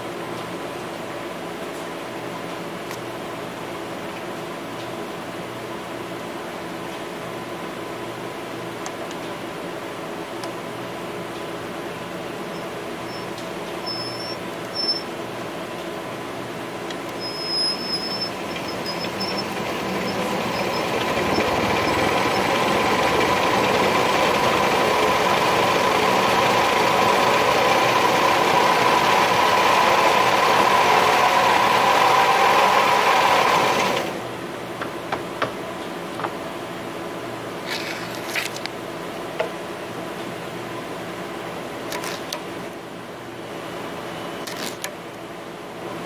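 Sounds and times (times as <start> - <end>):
machine motor and rollers whirring: 12.0 - 36.4.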